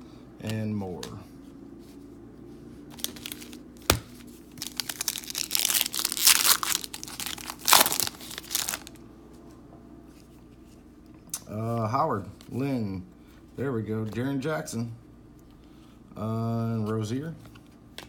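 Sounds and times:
foil wrapper tearing and crinkling: 2.9s - 9.0s.

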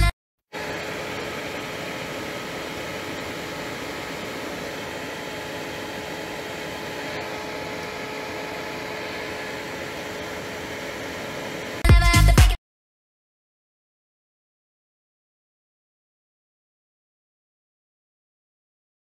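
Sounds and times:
mechanical whir with hum: 0.0s - 12.4s.

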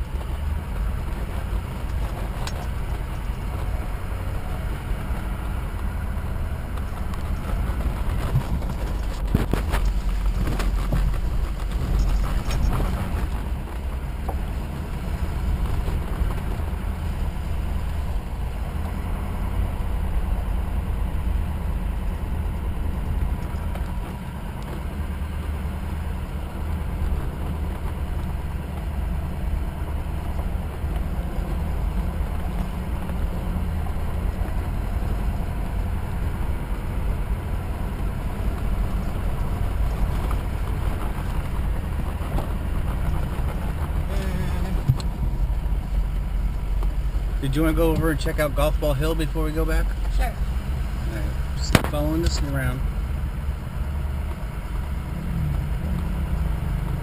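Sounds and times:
truck engine and tyre rumble: 0.0s - 57.0s
knocks and rattles: 6.7s - 14.4s.

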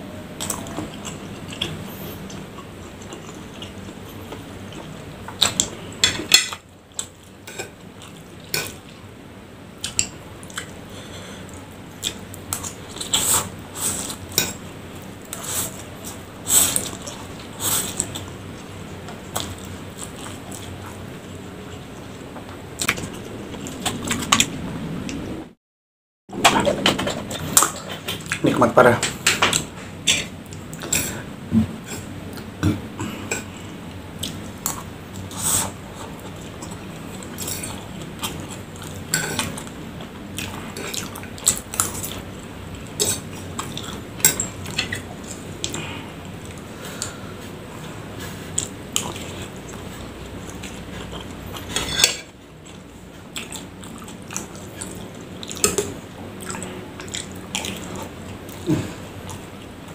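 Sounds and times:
chewing: 0.4s - 5.8s, 40.4s - 59.8s
fork scraping against bowl: 51.6s - 52.3s.

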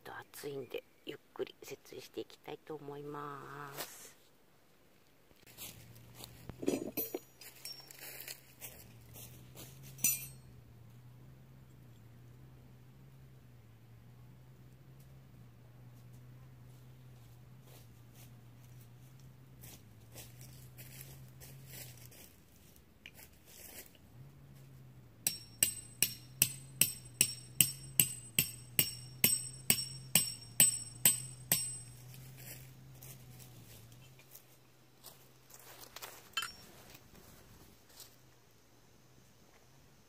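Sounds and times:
hammer striking metal tent peg: 10.0s - 10.4s, 25.2s - 32.0s.

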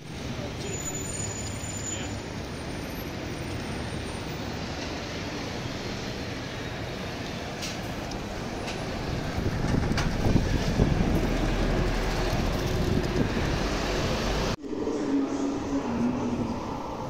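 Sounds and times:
cars passing: 0.1s - 17.0s.

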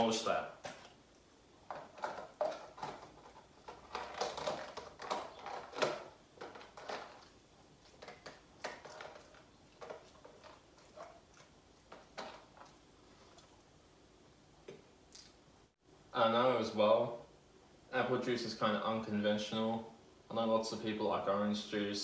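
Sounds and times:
plastic container clicks and crinkles: 1.7s - 10.6s
person chewing: 15.1s - 15.4s.

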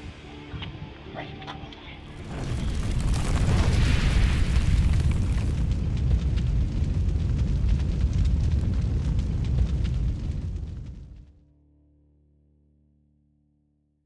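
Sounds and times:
deep cinematic rumble: 2.0s - 11.4s.

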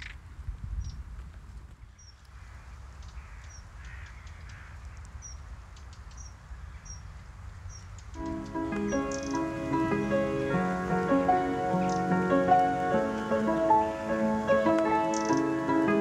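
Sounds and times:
hoarse crow-like calls: 2.4s - 5.0s
short high bird chirps: 8.2s - 9.4s, 11.8s - 12.1s, 15.1s - 15.5s
music with steady notes: 8.2s - 16.0s.

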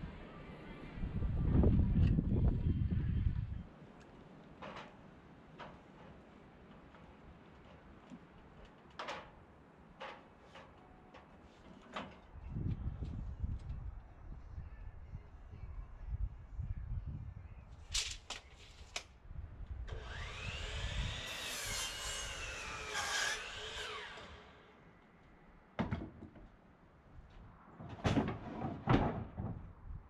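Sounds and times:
power drill running: 19.9s - 24.6s.

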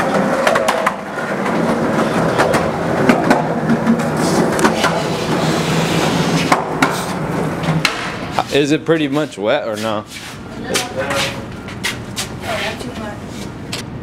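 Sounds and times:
wheels clacking over seams: 0.0s - 8.3s
skateboard wheels rolling on concrete: 0.0s - 8.5s.

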